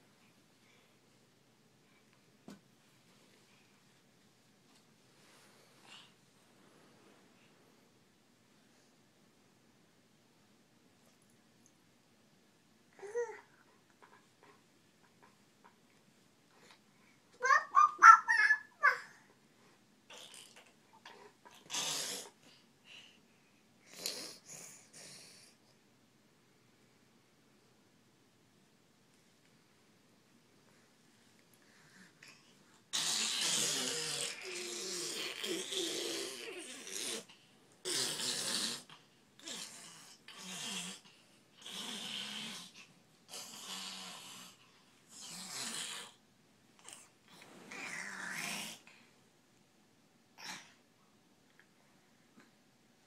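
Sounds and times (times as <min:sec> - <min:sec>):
heavy snore-like breathing: 0:32.9 - 0:46.2.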